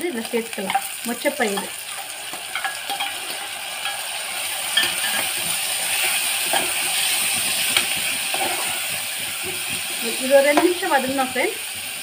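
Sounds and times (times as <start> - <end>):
food sizzling in oil: 0.0 - 12.0
spoon clinking against pot: 2.3 - 4.1, 4.8 - 5.4.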